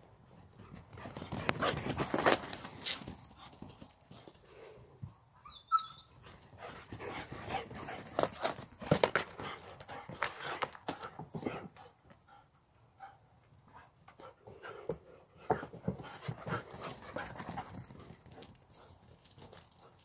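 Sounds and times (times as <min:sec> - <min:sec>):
dog footfalls and scuffs: 0:00.6 - 0:04.6, 0:06.2 - 0:11.7.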